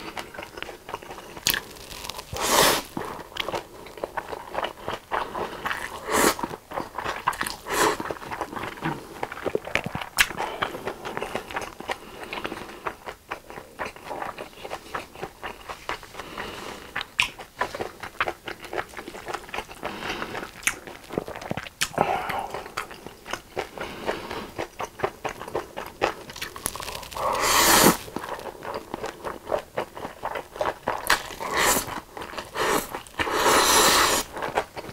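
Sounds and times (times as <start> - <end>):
wet chewing with mouth clicks: 0.0 - 34.9
noodle slurp: 1.6 - 3.0, 26.4 - 28.2, 31.4 - 34.4.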